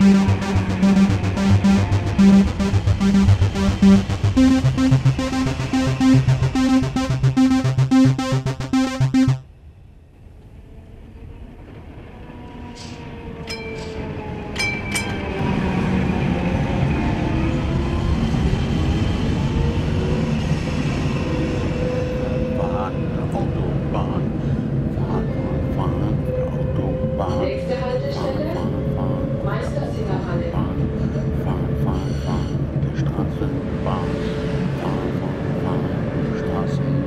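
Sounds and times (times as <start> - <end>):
electro-pop synthesizer music: 0.0 - 9.4.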